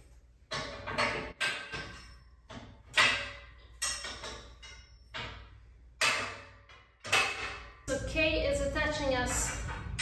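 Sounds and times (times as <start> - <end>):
metal bars clanking: 0.5 - 8.1.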